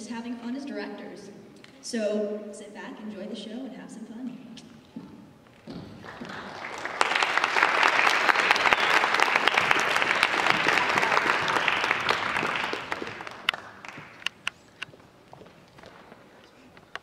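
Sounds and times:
audience applause: 6.0 - 14.4.

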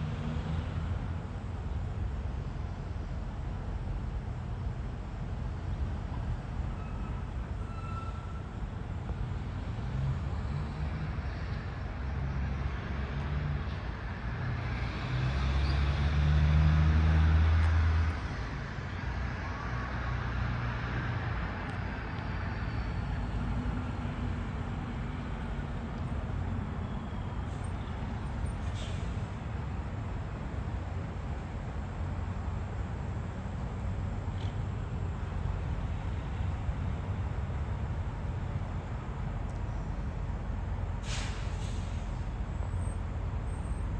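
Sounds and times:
rumble of passing traffic: 0.0 - 43.9
vehicle passing by: 9.5 - 25.4.

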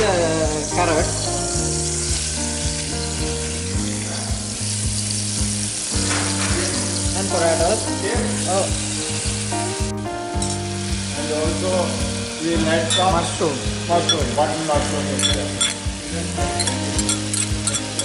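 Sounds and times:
background music with held notes: 0.0 - 18.0
carrots sizzling in a saucepan: 0.0 - 18.0
spoon scraping a pan: 15.1 - 15.9, 16.6 - 18.0.

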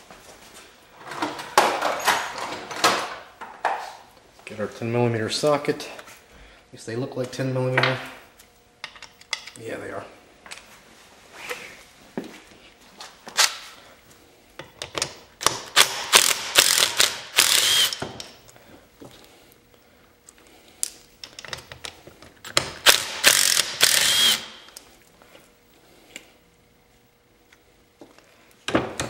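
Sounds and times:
drill rattling clicks: 16.2 - 18.0.

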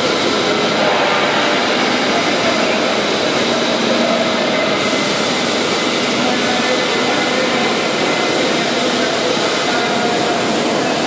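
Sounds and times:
bevelling machine grinding steel: 4.8 - 11.0.

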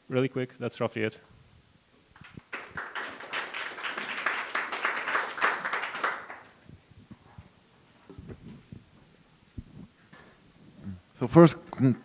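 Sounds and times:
audience applauding: 2.2 - 6.6.

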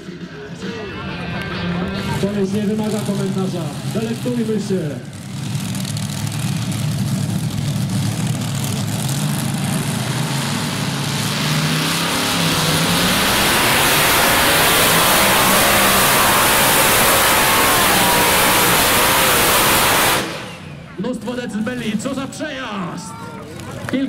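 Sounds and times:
tractor engine at full throttle: 0.0 - 24.0.

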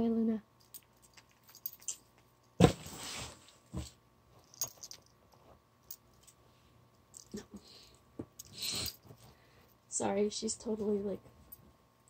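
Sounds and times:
faint clicks and jingles: 0.6 - 2.6.

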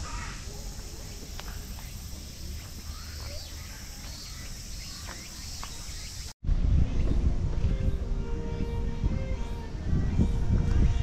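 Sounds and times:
bird chirps: 0.0 - 6.4
high drone of insects: 0.0 - 6.4.

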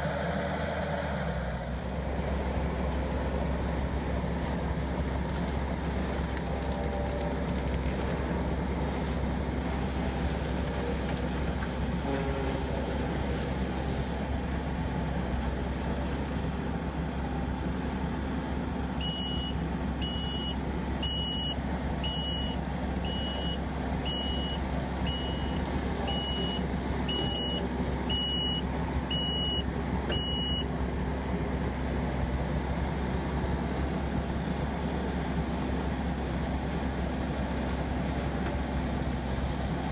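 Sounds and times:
diesel engine running: 0.0 - 39.9
reversing alarm beeps: 19.0 - 30.7.

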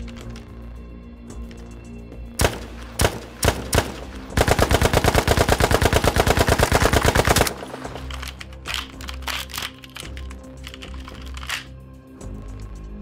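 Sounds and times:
submachine gun automatic fire: 2.4 - 8.3.

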